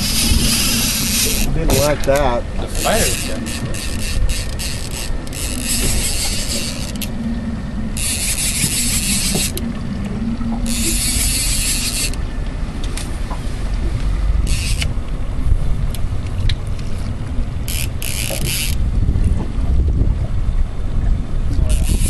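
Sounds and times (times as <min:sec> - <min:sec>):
fishing reel whirring: 0:00.0 - 0:09.6, 0:10.6 - 0:12.3, 0:14.4 - 0:15.0, 0:17.6 - 0:18.9, 0:21.7 - 0:22.0
low rumble: 0:00.0 - 0:21.7.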